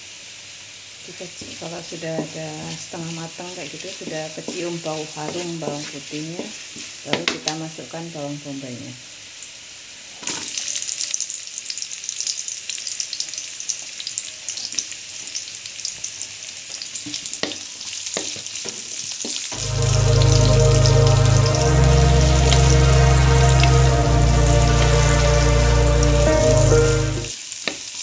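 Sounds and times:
garlic and onion sizzling in oil: 0.0 - 7.9, 9.3 - 28.0
background music: 19.6 - 27.3.

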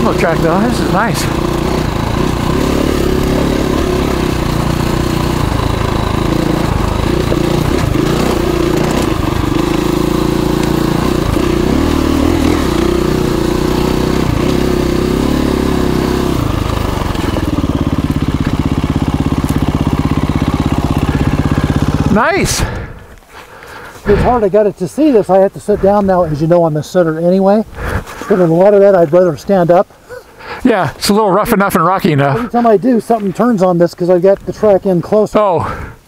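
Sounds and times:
motorcycle engine idling: 0.0 - 24.4
motorcycle engine revving: 0.0 - 24.5.

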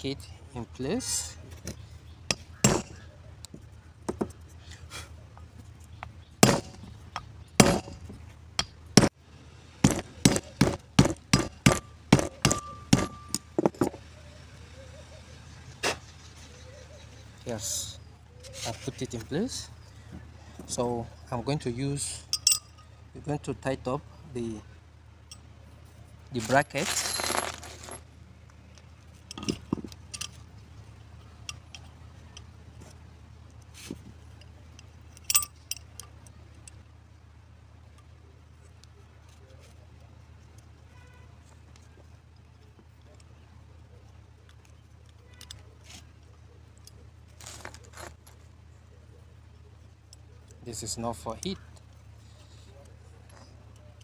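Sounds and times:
scraping rustle: 18.4 - 19.7, 26.3 - 28.1, 47.3 - 48.6
metal housing clicks and taps: 28.7 - 30.4, 34.4 - 36.8.

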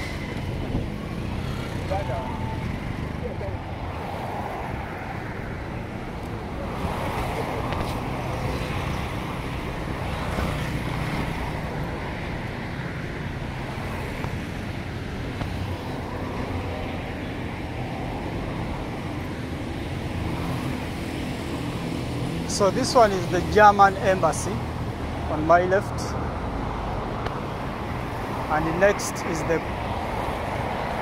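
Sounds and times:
motorcycles driving past: 0.0 - 12.4
cars driving past: 0.0 - 31.0.

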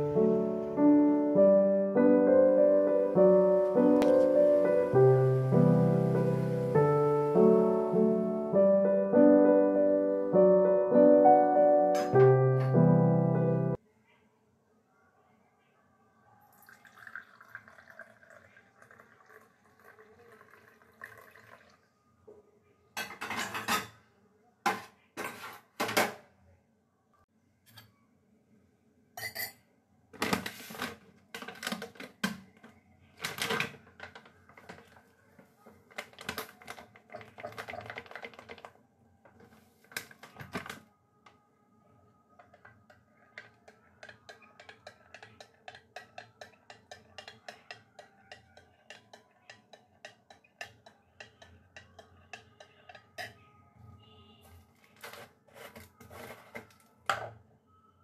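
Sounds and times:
dishes and utensils clattering: 12.0 - 12.8, 23.0 - 24.0, 24.7 - 26.2, 29.2 - 29.6, 35.9 - 38.7, 42.4 - 53.4
spoon clinking in glass cup: 29.2 - 29.6, 43.4 - 53.4.

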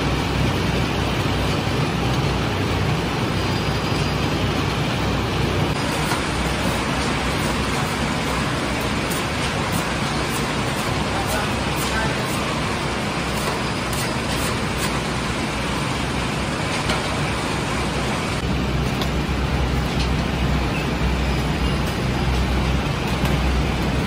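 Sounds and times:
dough machine droning: 0.0 - 24.0
scraper on steel trough: 5.8 - 15.0.

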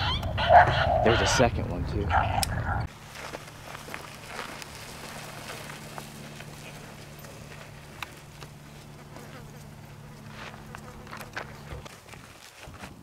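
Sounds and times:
footsteps on gravel: 2.9 - 13.0.

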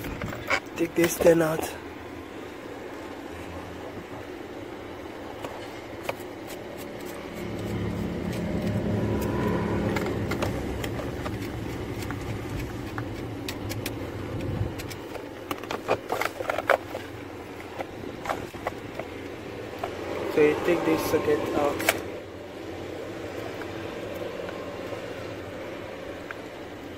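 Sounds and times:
low steady hum: 0.0 - 26.9.

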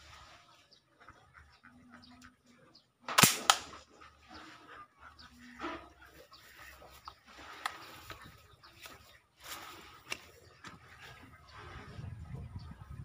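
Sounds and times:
faint farm animal calls: 0.0 - 3.1, 3.7 - 12.7
toy gun firing pops: 3.1 - 3.8.

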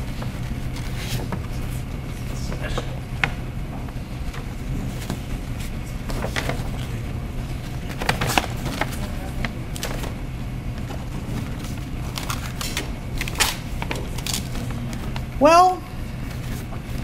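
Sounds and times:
steady low hum: 0.0 - 17.0
paper rustling and knocks: 4.4 - 7.0, 7.6 - 10.2.

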